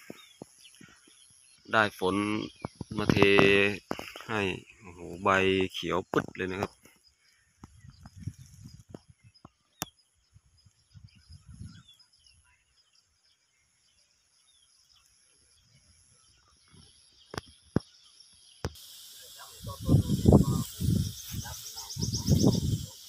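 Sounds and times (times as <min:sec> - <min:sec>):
bird chirps: 0:00.0 - 0:23.0
high insect trill: 0:14.0 - 0:23.0.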